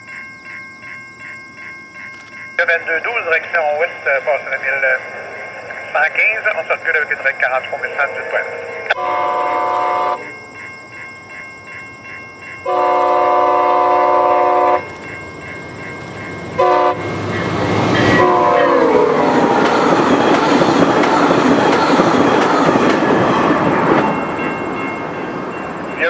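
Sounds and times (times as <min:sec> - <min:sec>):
bell ringing: 0:00.0 - 0:26.0
train rushing past: 0:02.6 - 0:11.3, 0:12.6 - 0:26.0
train horn blasts: 0:08.7 - 0:10.3, 0:12.6 - 0:14.9, 0:16.6 - 0:17.2, 0:18.0 - 0:19.1.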